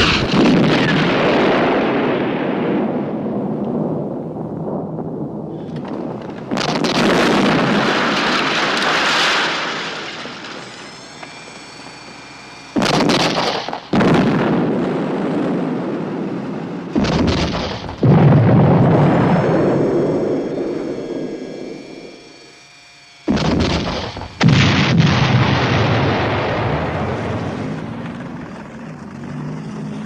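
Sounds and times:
tank gun blasts with rumble: 0:00.0 - 0:10.9, 0:12.7 - 0:20.9, 0:23.3 - 0:29.0
faint high ringing tone: 0:18.9 - 0:23.3.

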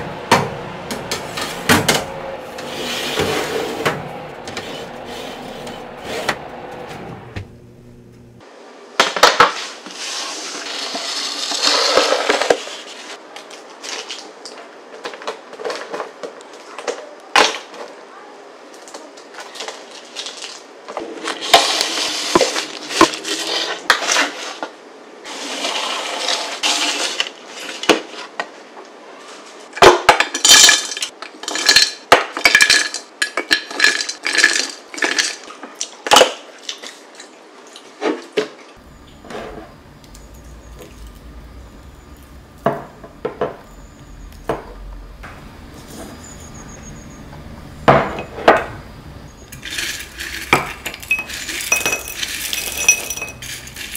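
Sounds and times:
spatula scraping baking sheet: 0:02.4 - 0:07.2, 0:09.5 - 0:13.2, 0:21.3 - 0:28.3, 0:49.5 - 0:53.9
granola clinking into glass jar: 0:49.5 - 0:53.9
spoon clinking ceramic bowl: 0:49.6 - 0:53.8.

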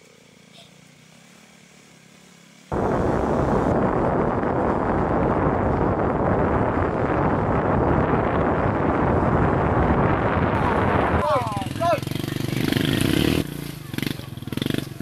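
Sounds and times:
wind buffeting microphone: 0:02.7 - 0:13.5.

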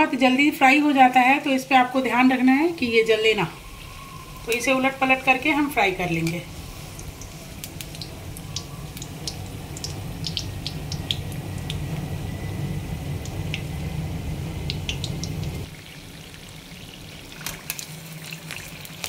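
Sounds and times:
food deep-frying in oil: 0:00.0 - 0:19.0
low hum: 0:02.1 - 0:15.7.

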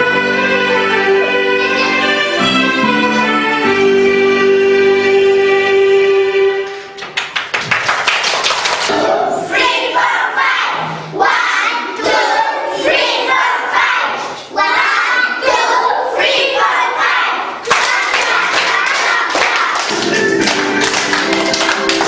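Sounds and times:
hand claps: 0:07.0 - 0:08.9, 0:17.7 - 0:22.0.

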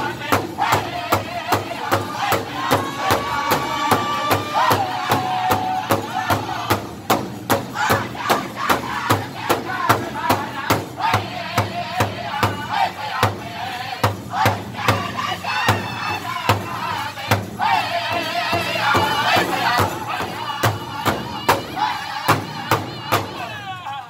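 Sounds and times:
large hand drum struck with sticks: 0:00.0 - 0:13.4
group singing in high voices: 0:00.0 - 0:24.0.

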